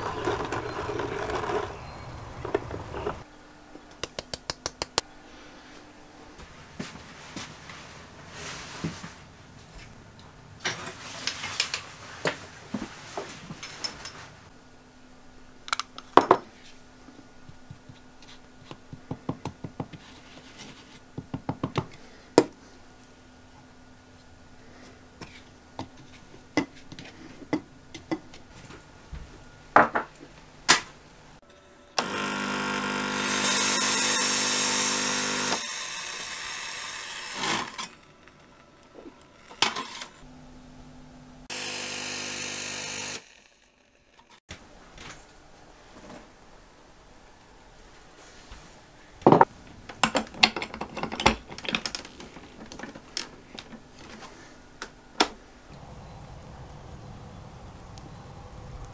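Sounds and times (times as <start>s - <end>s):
espresso machine pump buzzing: 32.0s - 37.6s, 41.5s - 43.4s.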